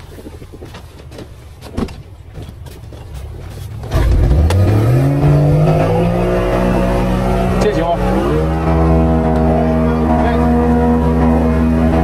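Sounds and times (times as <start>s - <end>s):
low rumble with knocks: 3.8s - 12.0s
outboard motor throttling up: 3.8s - 12.0s.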